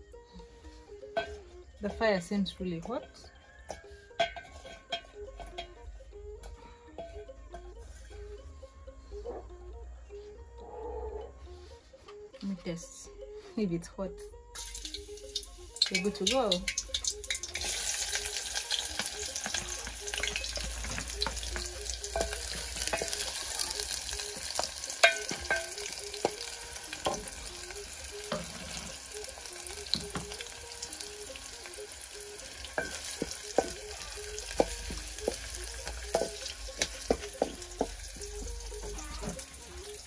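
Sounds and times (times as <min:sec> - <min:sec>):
wooden spoon scraping a pan: 0:03.7 - 0:05.8
onions sizzling in hot oil: 0:14.6 - 0:40.0.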